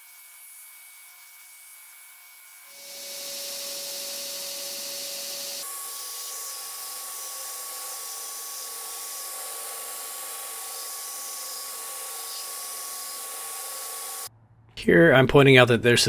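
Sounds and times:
belt grinder whine: 0:02.7 - 0:14.3.

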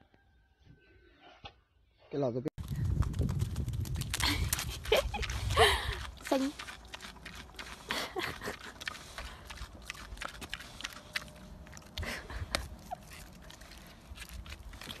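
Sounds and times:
pig mouth clicking and smacking: 0:03.0 - 0:15.0.

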